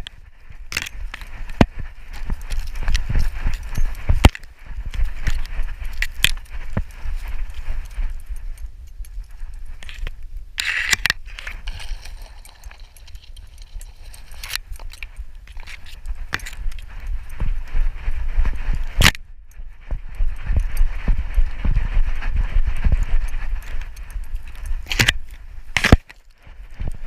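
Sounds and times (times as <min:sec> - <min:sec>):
camera rattling and knocking: 0:00.7 - 0:06.9, 0:09.8 - 0:17.0, 0:23.6 - 0:27.0.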